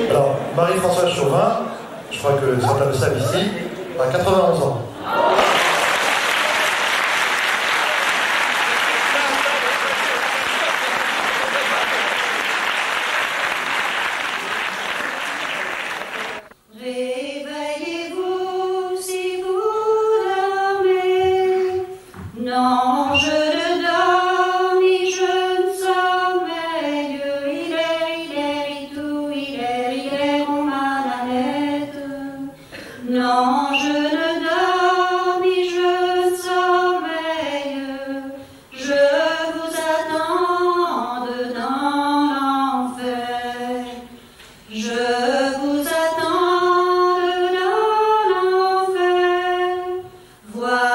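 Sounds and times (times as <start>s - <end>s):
person singing a capella: 16.7s - 50.9s.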